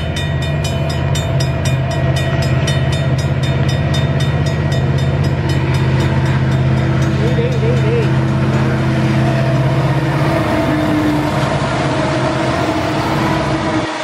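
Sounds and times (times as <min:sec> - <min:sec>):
level crossing bell ringing: 0:00.0 - 0:08.4
diesel locomotive drone: 0:00.0 - 0:14.0.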